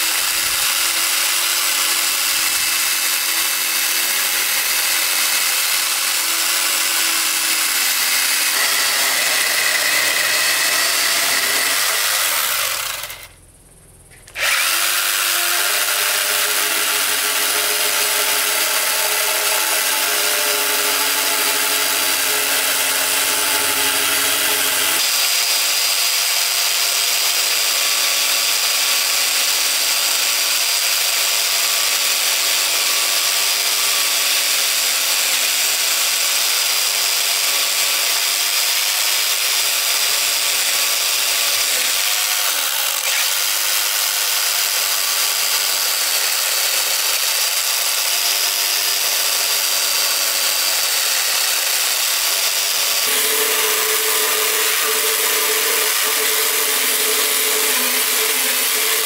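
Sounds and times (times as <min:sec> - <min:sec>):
electric chainsaw motor whine: 0:00.0 - 0:13.4, 0:14.2 - 0:33.8, 0:37.4 - 0:59.0.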